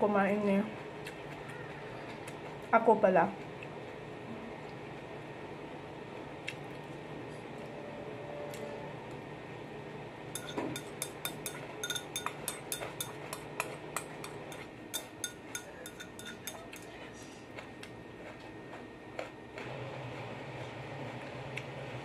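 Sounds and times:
chopsticks clinking on ceramic bowl: 0:10.4 - 0:13.2, 0:14.2 - 0:17.0.

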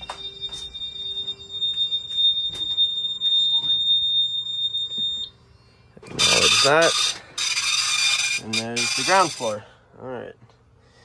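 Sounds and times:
footsteps: 0:00.0 - 0:04.0
fire alarm high-pitched tone: 0:00.0 - 0:05.4, 0:06.2 - 0:09.5.

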